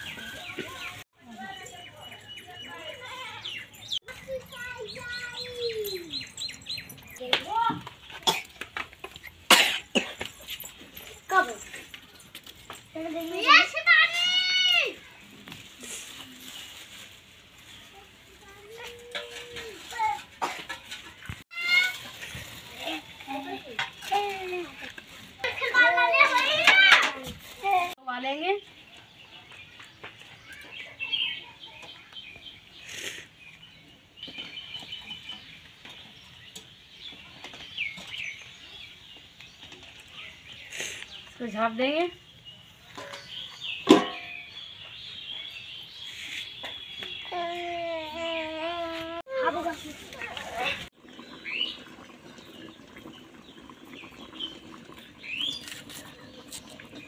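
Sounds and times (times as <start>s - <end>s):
birds chirping: 0.0s - 16.8s, 28.1s - 48.5s, 49.5s - 57.0s.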